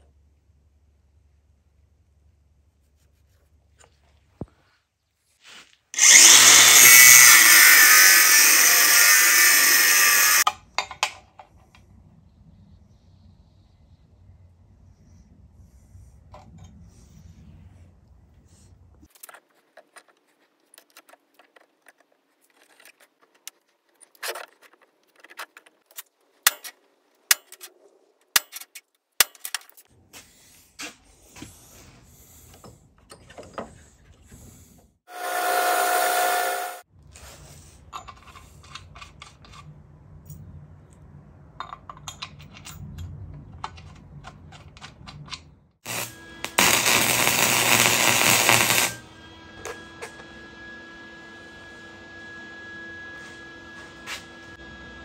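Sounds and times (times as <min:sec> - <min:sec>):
power tool running: 0:06.0 - 0:10.5, 0:35.1 - 0:36.8, 0:45.8 - 0:55.0
welding arc crackle: 0:06.0 - 0:10.5, 0:45.9 - 0:49.0
metal parts clinking and knocking: 0:10.4 - 0:11.6, 0:41.6 - 0:45.5.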